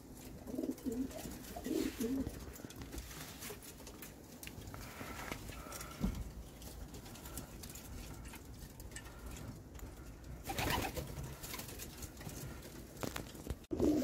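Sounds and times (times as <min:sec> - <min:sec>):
pigeons cooing: 0:00.3 - 0:02.8, 0:13.7 - 0:14.0.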